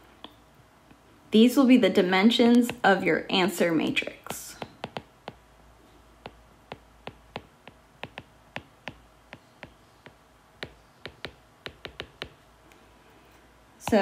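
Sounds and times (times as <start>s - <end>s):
stylus tapping on glass screen: 4.6s - 5.4s, 6.2s - 12.4s.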